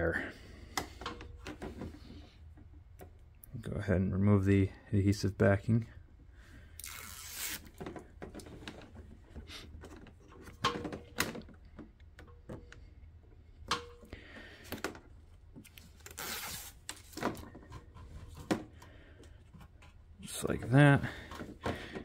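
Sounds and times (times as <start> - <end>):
plastic strip rustling: 6.8 - 7.8, 15.6 - 17.4
adhesive backing peeling: 16.0 - 17.0.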